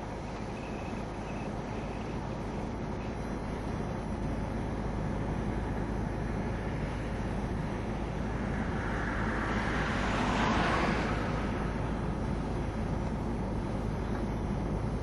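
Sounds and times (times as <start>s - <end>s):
low rumble inside car: 0.0s - 15.0s.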